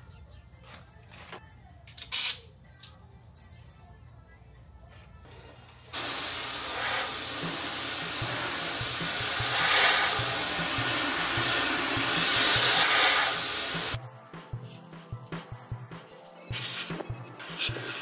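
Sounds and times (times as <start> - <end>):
paint spray gun hissing: 6.0 - 14.0.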